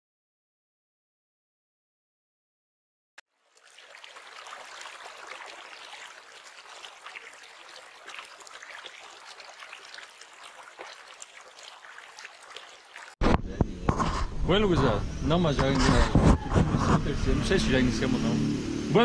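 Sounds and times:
river water rushing: 3.7s - 13.2s.

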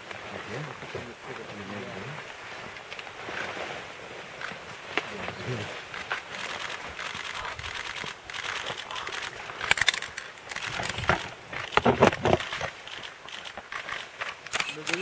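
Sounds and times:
leaves and branches rustling: 0.0s - 15.0s
camera shutters clicking: 6.2s - 15.0s.

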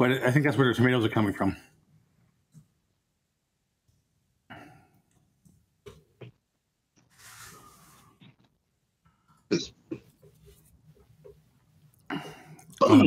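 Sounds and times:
faint breaths: 12.0s - 12.7s.

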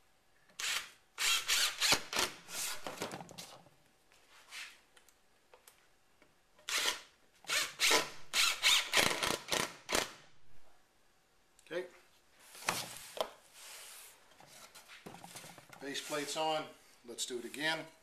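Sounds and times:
impact driver hammering screws: 6.7s - 10.2s.

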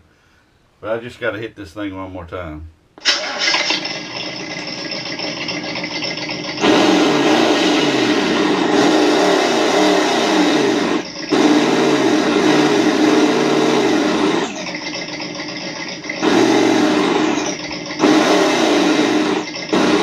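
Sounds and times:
simulated engine revving from speaker: 6.6s - 14.6s, 16.2s - 20.0s.

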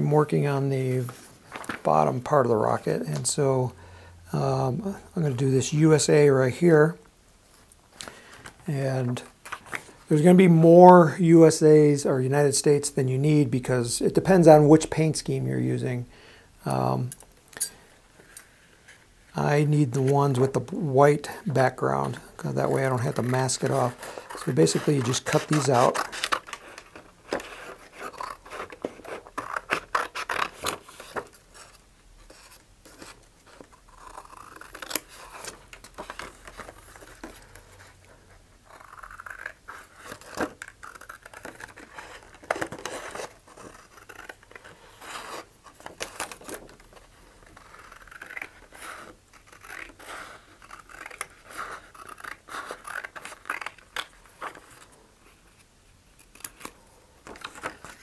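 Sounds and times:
paper sheet rustling: 1.0s - 2.0s, 21.6s - 33.8s
scissors snipping paper: 47.5s - 54.1s.

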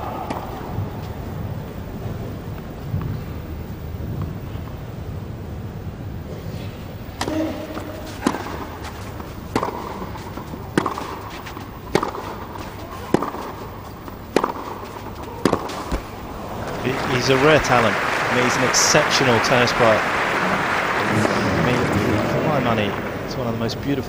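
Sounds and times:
tennis balls struck by rackets: 0.0s - 1.0s, 7.2s - 24.0s.

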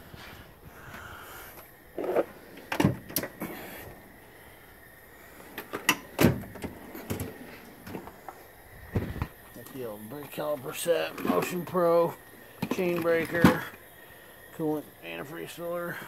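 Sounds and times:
drawers sliding and knocking: 2.0s - 3.4s, 5.4s - 8.2s.

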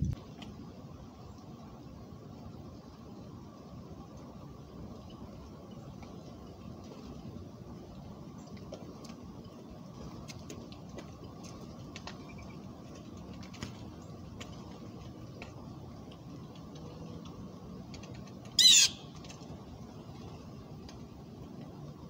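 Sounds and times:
low outdoor background: 0.0s - 22.0s
faint clicks: 10.0s - 19.5s
blue jay call: 18.6s - 19.1s.

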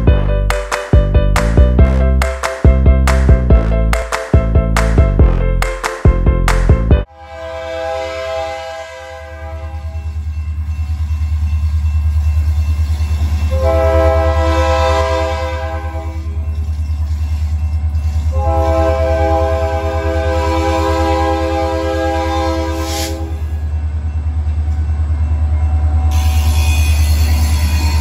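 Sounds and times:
locomotive air horn: 7.1s - 10.2s, 13.5s - 16.4s, 18.3s - 23.5s.

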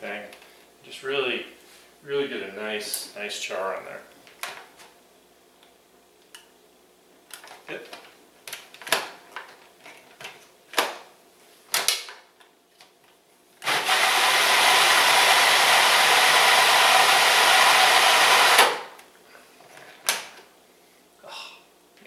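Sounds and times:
food processor motor running: 13.6s - 19.0s.

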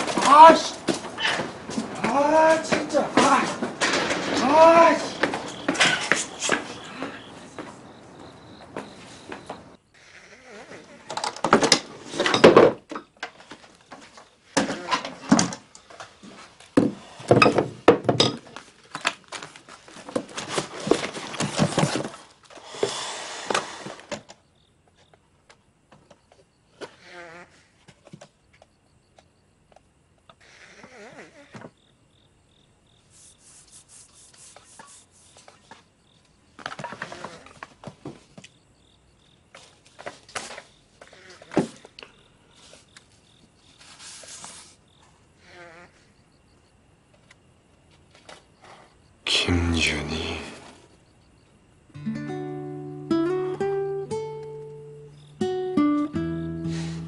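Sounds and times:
objects clattering and knocking: 0.0s - 6.8s, 11.1s - 22.5s
crickets chirping: 0.0s - 57.0s
paper pages rustling: 18.8s - 22.3s, 33.2s - 35.8s, 43.7s - 44.8s.

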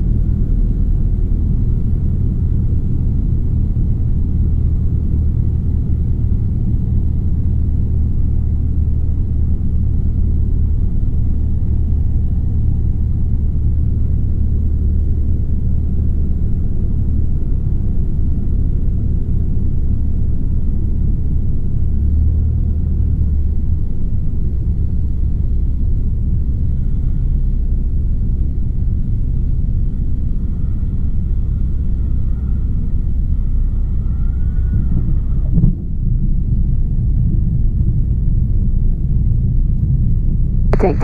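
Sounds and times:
light aircraft engine droning: 0.0s - 41.0s.

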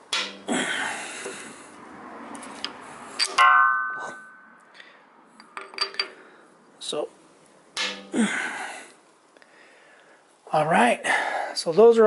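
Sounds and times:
ringing metallic clang: 0.0s - 0.5s, 3.2s - 4.6s, 7.8s - 8.4s.

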